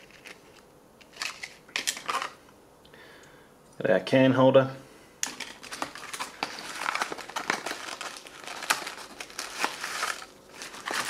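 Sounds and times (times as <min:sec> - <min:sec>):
packaging crinkling and rustling: 0:00.0 - 0:02.4, 0:05.2 - 0:11.0.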